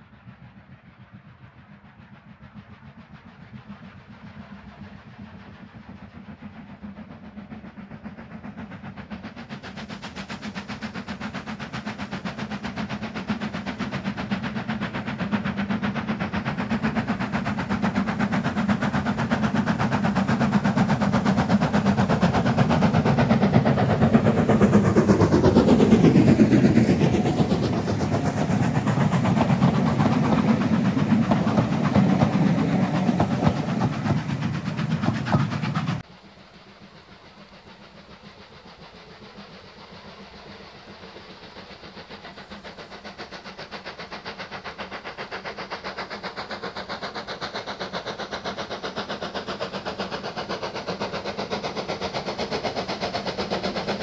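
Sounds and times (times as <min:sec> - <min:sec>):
steam train passing: 0:00.0 - 0:54.0.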